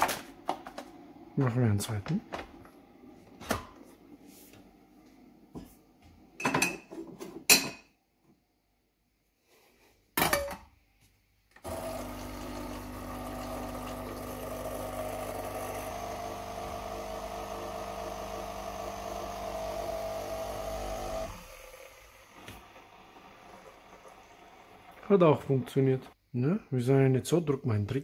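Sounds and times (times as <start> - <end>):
coffee machine pump humming: 11.6 - 26.2.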